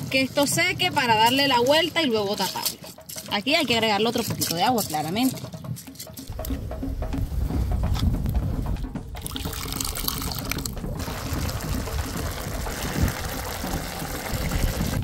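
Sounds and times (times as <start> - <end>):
water pouring into a pot: 9.2 - 15.0.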